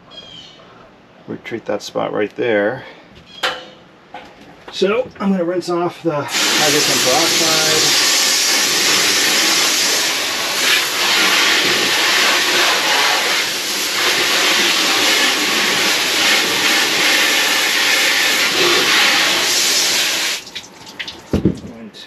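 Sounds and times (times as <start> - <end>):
hose nozzle spraying water: 6.3 - 21.2.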